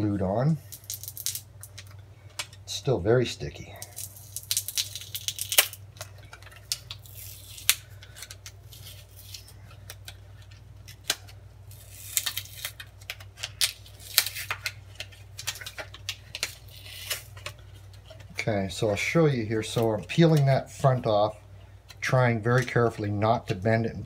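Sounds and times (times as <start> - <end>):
adhesive overlay peeling crackle: 3.8 - 10.2, 10.9 - 18.2.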